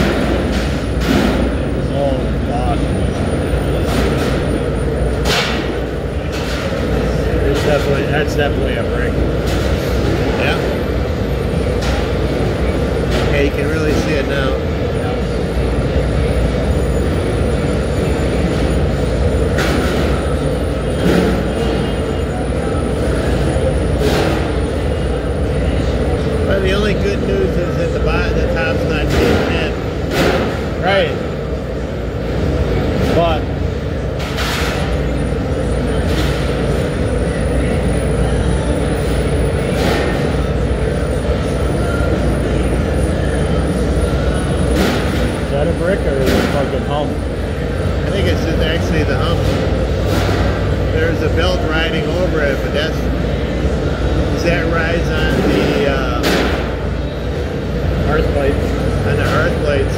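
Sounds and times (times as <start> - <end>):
furnace rumbling with hiss: 0.0 - 59.9.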